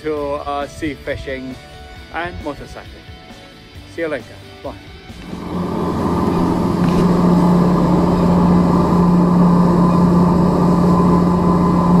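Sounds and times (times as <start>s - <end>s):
boat engine drone: 5.2s - 12.0s
wake churning: 5.3s - 12.0s.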